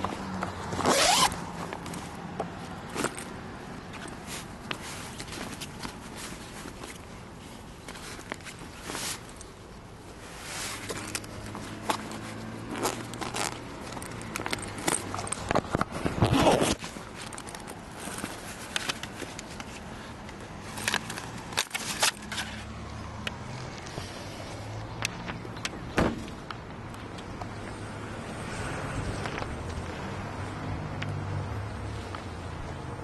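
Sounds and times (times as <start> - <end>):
rustling clothes in fabric bag: 0.0 - 9.5, 10.2 - 22.5.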